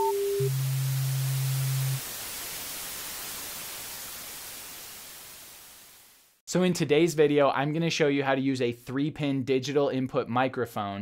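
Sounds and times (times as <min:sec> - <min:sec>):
low steady tone: 0:00.0 - 0:02.0
static hiss: 0:00.0 - 0:06.4.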